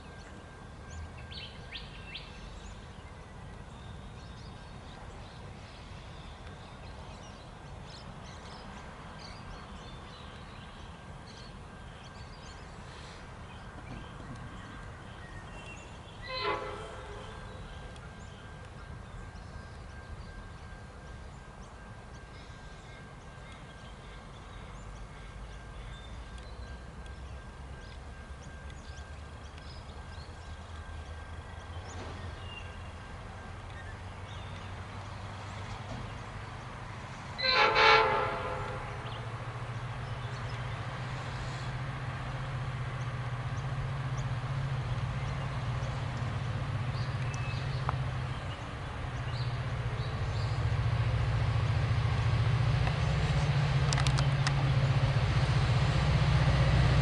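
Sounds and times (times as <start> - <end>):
freight train rumble: 0.0 - 57.0
locomotive horn toot: 16.2 - 17.7, 37.4 - 39.3.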